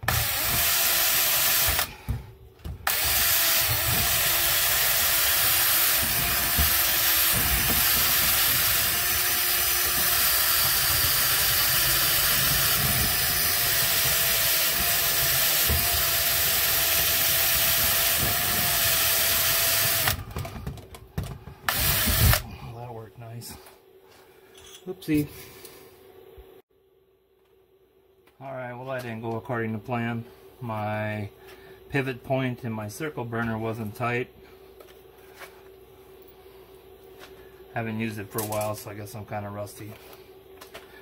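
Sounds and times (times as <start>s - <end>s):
cordless drill motor: 0.0s - 2.2s, 2.8s - 20.4s, 21.7s - 22.5s
cutter scraping metal: 2.8s - 20.2s.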